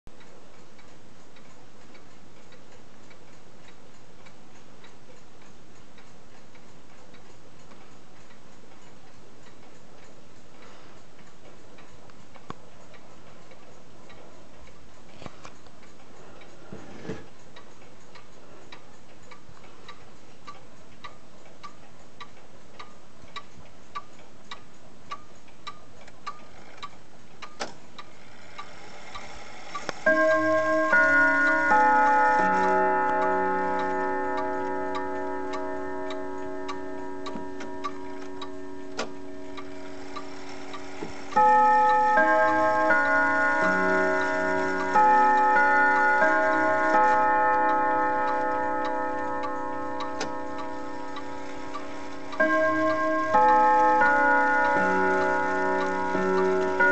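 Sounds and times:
clock pendulum ticking: 0.1s - 56.9s
steady hiss: 49.9s - 56.9s.

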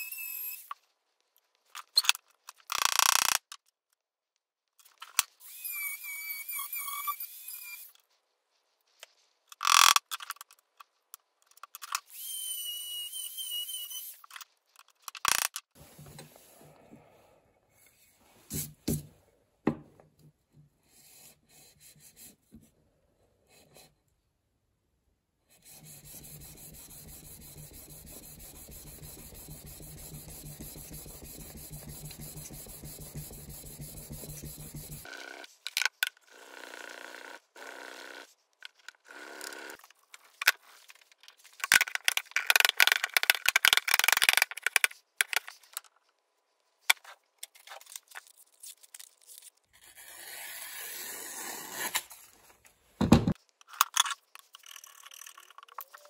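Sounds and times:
rubbing on abrasive plate: 25.6s - 35.1s.

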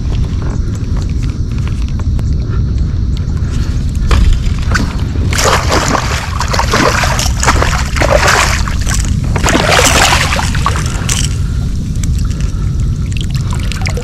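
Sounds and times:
steady low rumble: 0.0s - 14.0s
fish splashing at water surface: 5.3s - 11.3s.

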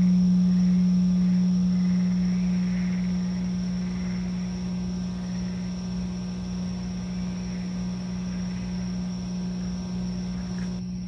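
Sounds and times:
crystal singing bowl ringing: 0.0s - 5.4s.

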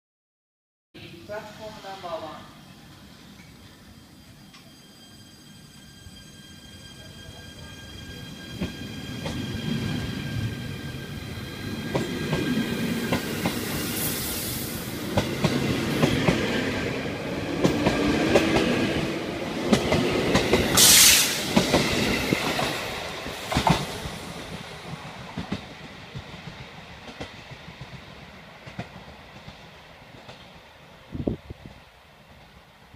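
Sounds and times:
train inverter whine: 1.0s - 27.3s
brief loud hiss: 20.8s - 21.5s.

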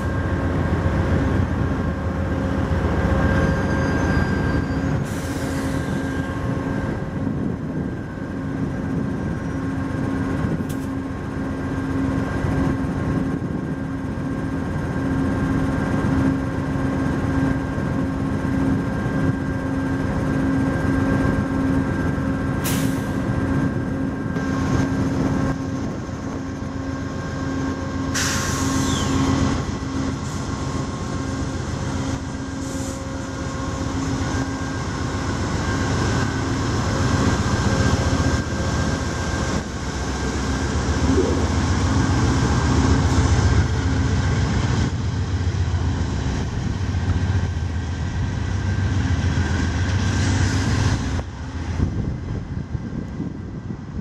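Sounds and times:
diesel locomotive humming: 0.0s - 54.0s
air hissing: 28.1s - 29.2s.

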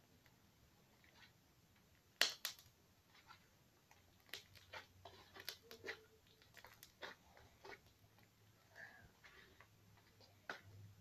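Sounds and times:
slime squelching and popping: 1.0s - 8.6s.

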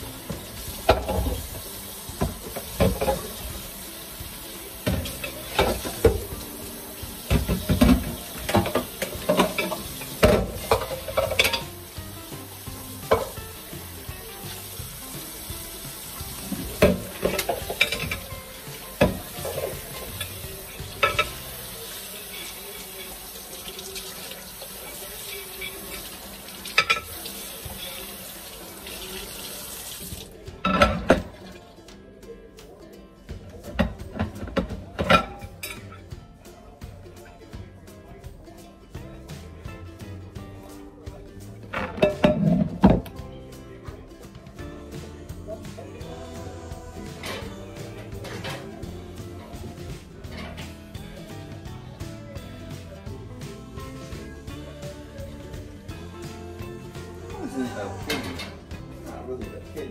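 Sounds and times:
tap water running: 0.0s - 31.4s, 41.3s - 43.3s, 44.4s - 59.9s
dishes clinking against sink: 0.2s - 3.6s, 4.7s - 12.0s, 12.7s - 14.7s, 16.0s - 28.2s, 30.6s - 31.7s, 33.6s - 36.0s, 41.7s - 43.2s, 47.1s - 48.8s, 57.5s - 58.7s.

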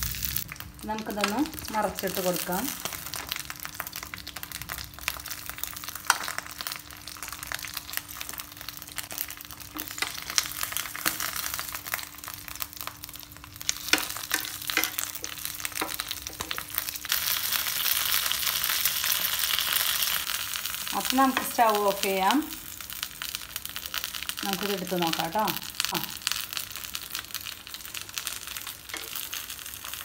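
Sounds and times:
fish sizzling in oil in a frying pan: 0.0s - 30.0s
wooden spatula clicks and scrapes: 13.7s - 16.7s.

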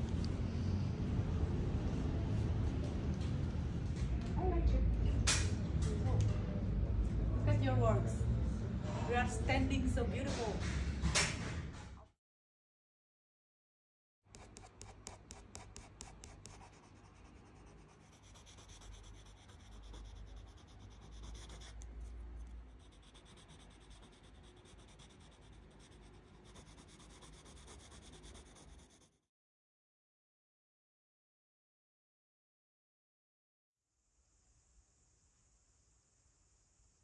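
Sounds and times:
pencil scratching on paper: 14.3s - 29.2s.

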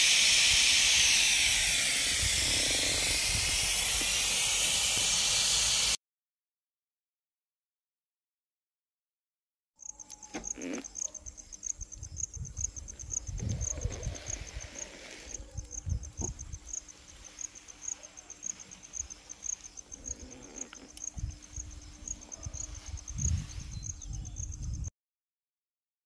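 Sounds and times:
insect chirping: 0.0s - 5.0s, 9.8s - 24.9s
low rumbling on microphone: 12.0s - 14.6s.

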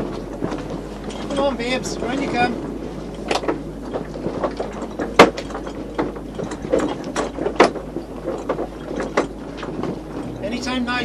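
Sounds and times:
deck gear clicking and knocking: 0.0s - 11.0s.

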